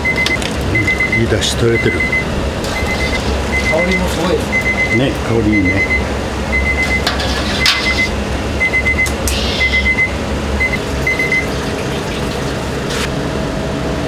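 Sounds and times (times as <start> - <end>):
high electronic beeps: 0.0 - 7.0, 7.6 - 11.7
equipment low rumble: 0.0 - 14.0
utensils clanking: 6.8 - 8.2.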